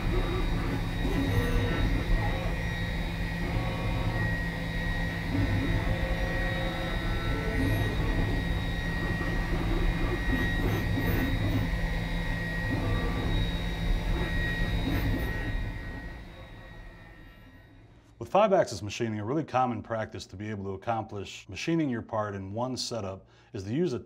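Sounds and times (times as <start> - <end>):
milling machine whining: 0.0 - 17.7.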